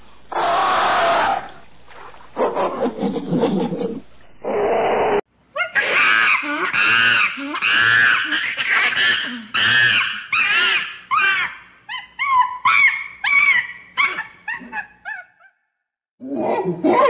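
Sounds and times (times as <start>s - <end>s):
gibbon whooping calls: 5.6s - 15.5s.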